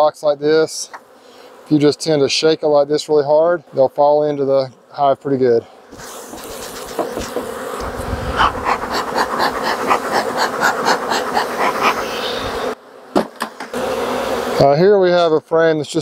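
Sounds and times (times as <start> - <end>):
honeybees buzzing loudly: 0.0 - 16.0
bee smoker bellows puffs: 0.7 - 2.4, 4.7 - 15.3.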